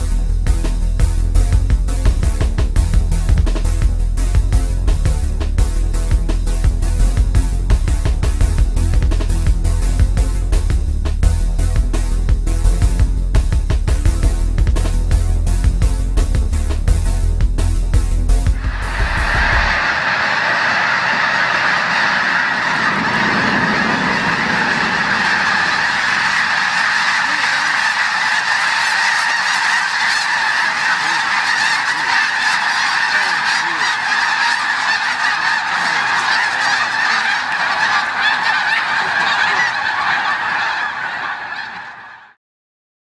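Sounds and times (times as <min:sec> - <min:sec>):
snow geese honking: 0:18.6 - 0:42.4.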